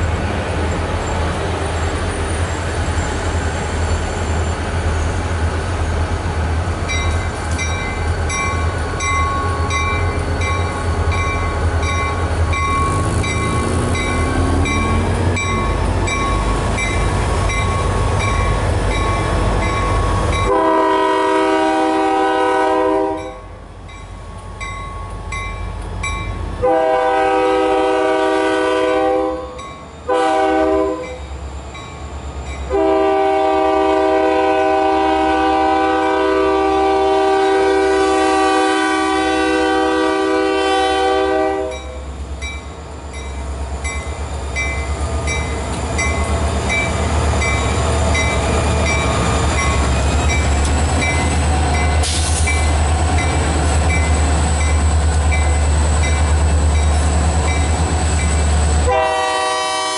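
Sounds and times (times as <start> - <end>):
locomotive engine rumbling: 0.0 - 59.9
train horn: 20.4 - 23.6, 26.6 - 31.2, 32.7 - 42.0, 58.8 - 59.9.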